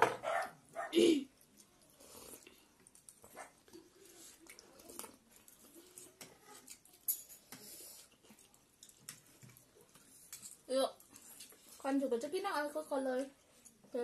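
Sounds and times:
noodles slurped and chewed: 0:01.0 - 0:14.0
cutlery clicking against bowls: 0:06.0 - 0:07.8.

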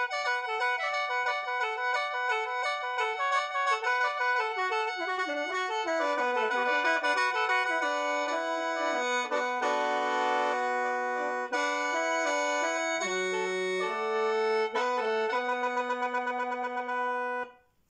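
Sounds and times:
bamboo mouth organ playing: 0:00.0 - 0:17.6.

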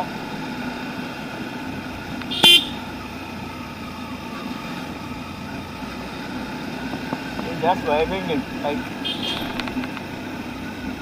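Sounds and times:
motorcycle engine and road noise: 0:00.0 - 0:11.0
vehicle horn beep: 0:02.2 - 0:02.8, 0:09.0 - 0:09.6.

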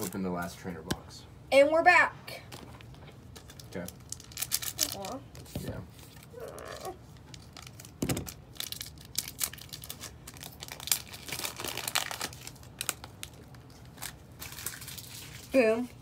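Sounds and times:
crackling plastic rustles: 0:00.0 - 0:00.3, 0:02.5 - 0:16.0
plastic packaging tearing: 0:03.3 - 0:05.4, 0:06.1 - 0:15.7.

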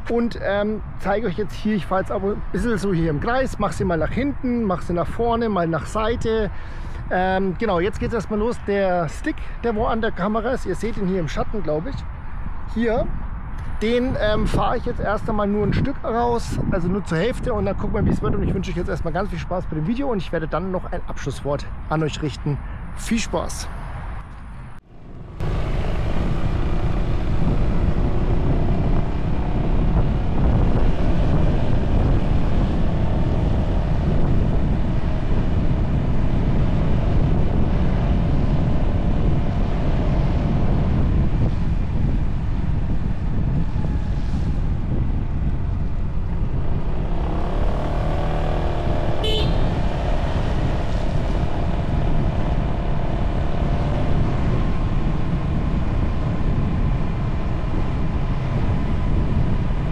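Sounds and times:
wind rumble on microphone: 0:00.0 - 0:59.9
scooter engine drone: 0:24.8 - 0:39.4, 0:45.8 - 0:55.9.

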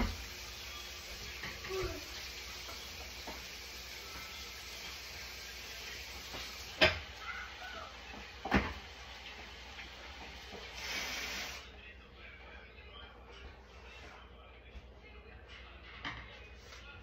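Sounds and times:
short hiss: 0:10.7 - 0:11.6.

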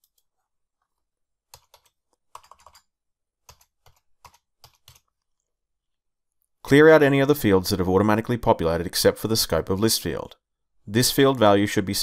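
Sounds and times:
faint keyboard typing: 0:00.0 - 0:05.5.

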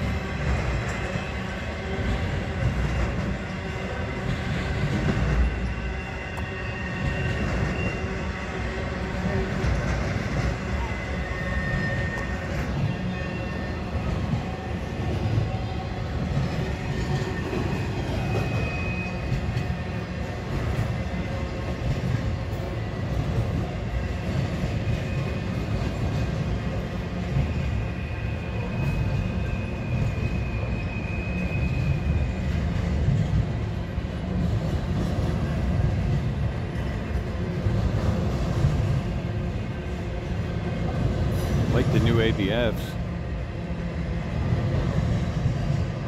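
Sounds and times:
high wheel squeal: 0:00.0 - 0:09.5, 0:10.1 - 0:20.3, 0:26.6 - 0:32.8
train wheels rumbling on rail: 0:00.0 - 0:46.0.

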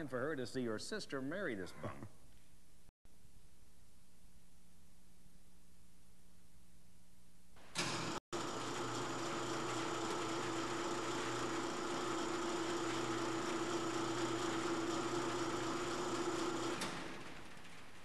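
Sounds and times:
roll-up door motor humming and whining: 0:07.7 - 0:18.0.

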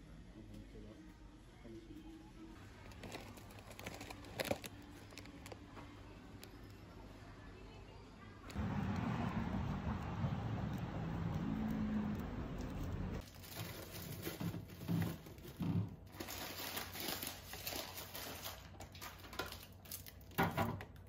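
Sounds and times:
plastic bags crinkling: 0:02.6 - 0:05.7, 0:13.2 - 0:20.4
low traffic hum: 0:04.7 - 0:13.3.

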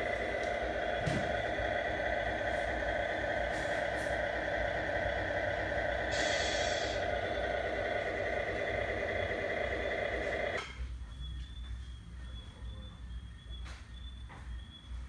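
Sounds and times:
truck engine sound: 0:00.0 - 0:11.1.

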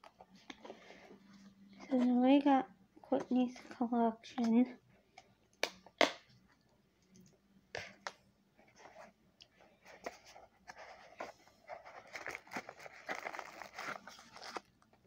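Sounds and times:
hands handling cardboard box: 0:09.8 - 0:14.7.

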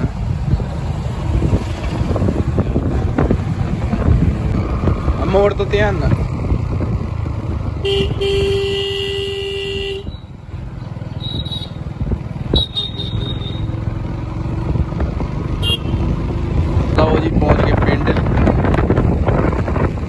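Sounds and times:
wind noise on microphone: 0:00.0 - 0:09.0, 0:11.2 - 0:12.8, 0:14.4 - 0:20.0
motorbike engine running: 0:06.2 - 0:17.3
motorbike horn: 0:07.8 - 0:10.3, 0:12.5 - 0:13.8, 0:15.6 - 0:16.0.

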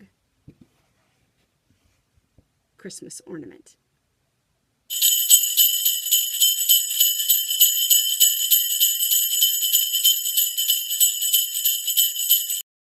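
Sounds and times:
sleigh bells jingling: 0:04.9 - 0:12.6.

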